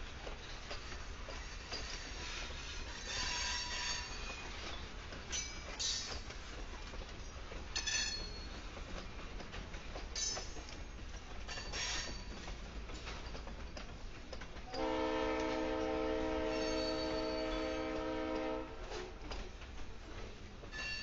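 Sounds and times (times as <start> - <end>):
locomotive air horn blast: 14.8 - 18.9.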